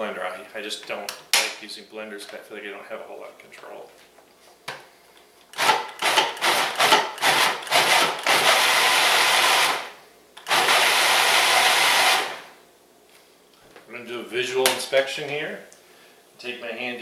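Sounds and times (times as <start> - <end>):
food processor chopping: 5.6 - 12.5.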